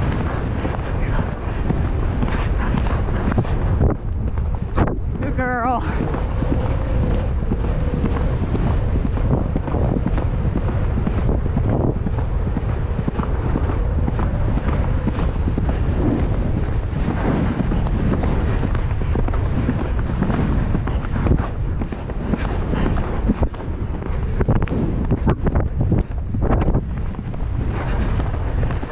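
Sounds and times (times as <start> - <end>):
horse hoofbeats on grass: 0.0 - 28.9
wind buffeting microphone: 0.0 - 28.9.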